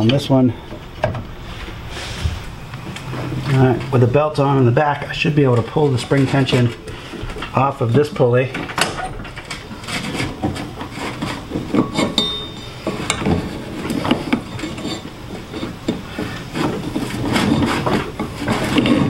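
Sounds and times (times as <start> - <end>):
rubber belt rubbing over pulleys: 9.4 - 12.2, 12.9 - 19.0
metal parts knocking and clinking: 11.5 - 15.0
brief high metallic ring: 12.2 - 12.8.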